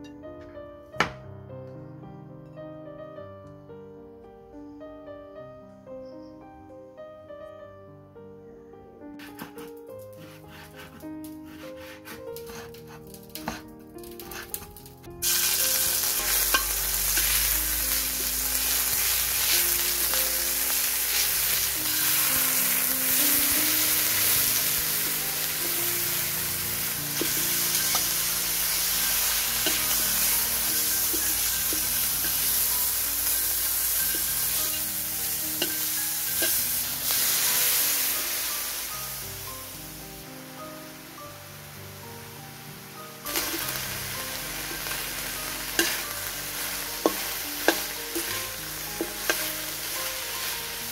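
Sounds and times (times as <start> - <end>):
metal spatula scraping a wok: 9.2 - 22.4, 23.5 - 38.2, 43.3 - 43.9, 44.6 - 50.9
food sizzling in a wok: 9.2 - 50.9.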